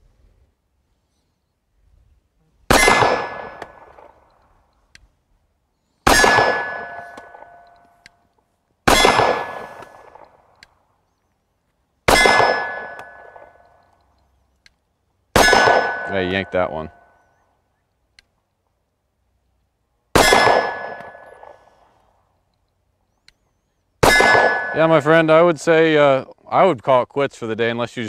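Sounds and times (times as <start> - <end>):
pistol shots: 2.7 - 4.2, 6.0 - 7.6, 8.8 - 10.4, 12.1 - 13.6, 15.3 - 16.6, 20.1 - 21.6, 24.0 - 24.9
steel target clanging: 6.1 - 7.8, 12.1 - 13.6, 15.4 - 17.0, 24.0 - 25.2.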